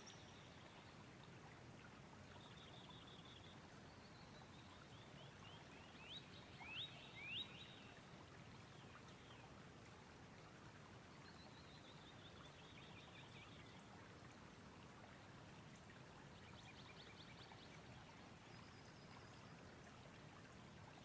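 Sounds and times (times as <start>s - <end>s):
bird calls and trills: 0.0s - 1.0s, 2.3s - 8.1s.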